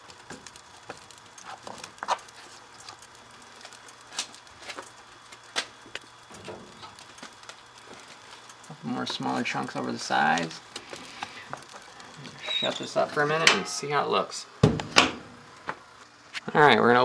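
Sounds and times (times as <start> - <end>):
kindling fire burning: 0.0 - 17.0
firewood knocking in firebox: 14.6 - 15.2.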